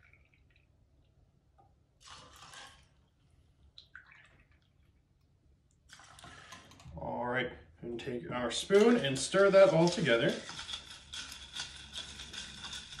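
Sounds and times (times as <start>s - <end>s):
faint liquid trickling over ice: 0.0s - 6.8s.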